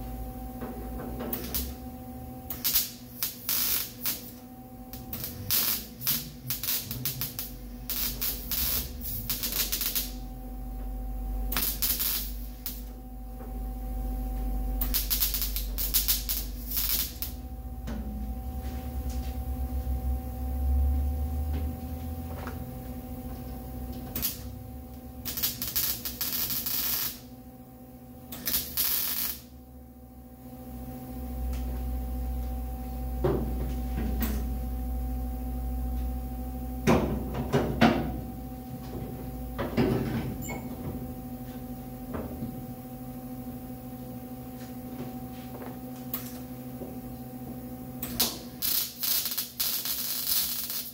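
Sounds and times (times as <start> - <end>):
electrical hum: 0.0 - 50.9
welder crackling sputter: 1.3 - 1.8, 2.5 - 10.3, 11.4 - 12.9, 14.8 - 17.4, 24.0 - 27.3, 28.3 - 29.6, 48.0 - 50.9.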